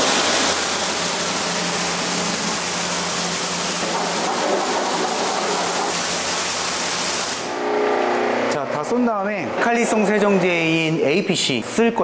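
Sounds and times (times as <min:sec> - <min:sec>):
pressure washer spray hissing: 0:00.0 - 0:07.6.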